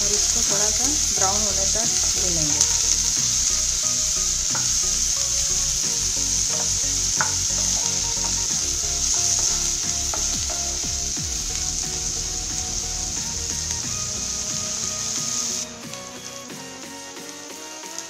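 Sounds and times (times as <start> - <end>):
onions sizzling in oil: 0.0 - 18.0.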